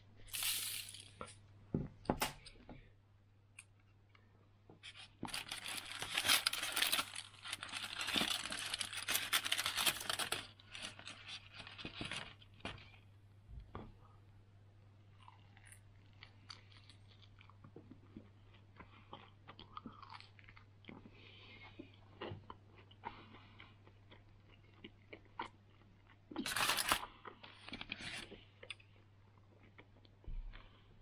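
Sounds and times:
batter crackling: 4.8s - 13.0s
chewing crisp fried batter: 15.1s - 30.8s.

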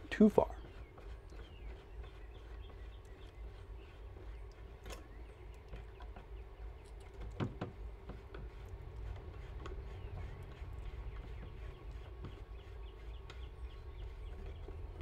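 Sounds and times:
low steady rumble: 0.0s - 15.0s
knocks on wood: 7.3s - 8.2s.

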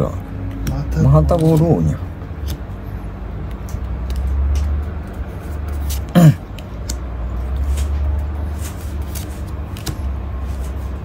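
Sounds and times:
trading cards being flipped: 3.4s - 11.0s
throat clearing: 6.0s - 6.5s.

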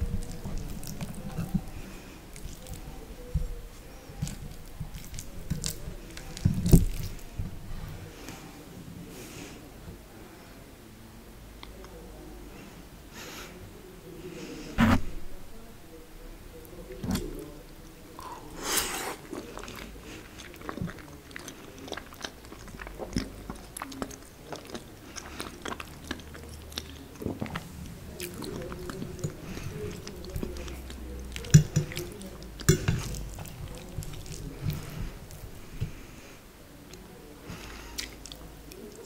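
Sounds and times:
chewing and wet mouth sounds: 0.0s - 7.9s, 16.6s - 36.2s, 36.9s - 39.0s.

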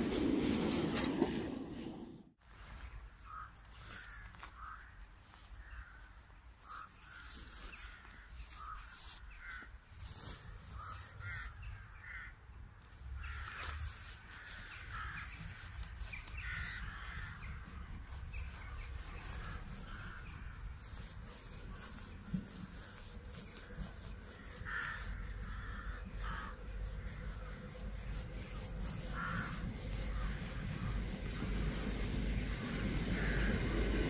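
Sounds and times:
crows cawing: 3.2s - 9.8s, 10.8s - 12.4s, 13.2s - 15.5s, 16.4s - 17.9s, 19.2s - 21.1s, 22.8s - 31.0s, 33.1s - 34.0s.

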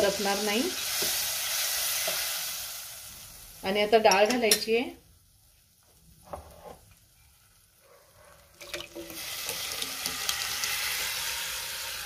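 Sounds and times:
hissing of lentils in hot oil: 0.0s - 3.9s, 8.9s - 12.0s.

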